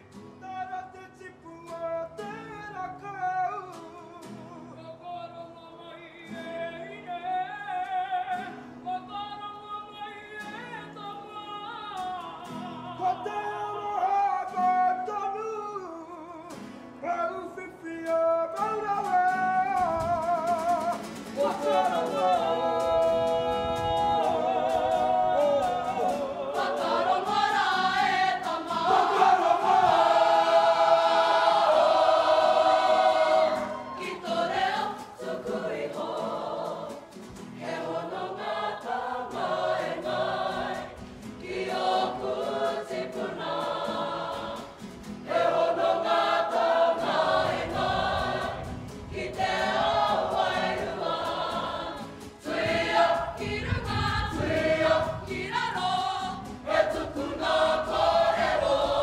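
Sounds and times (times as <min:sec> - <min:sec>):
choir of men and women singing: 0:19.3 - 0:59.0.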